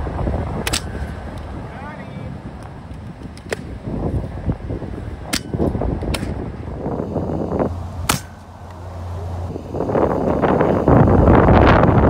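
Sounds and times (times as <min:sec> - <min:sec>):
air rifle shots: 0:00.6 - 0:01.1, 0:05.2 - 0:06.5, 0:08.0 - 0:08.6.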